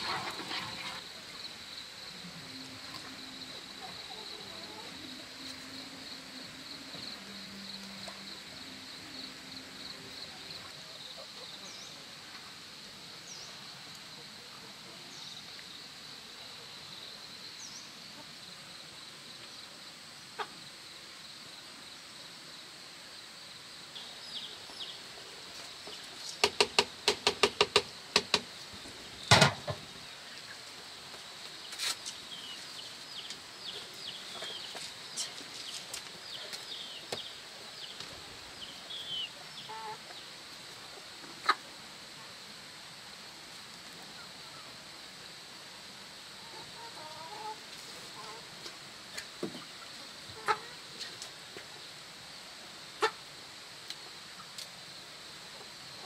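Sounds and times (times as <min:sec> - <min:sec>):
chickens clucking: 0:20.3 - 0:20.7, 0:32.5 - 0:37.3, 0:38.8 - 0:41.7, 0:46.4 - 0:51.8, 0:53.0 - 0:53.3.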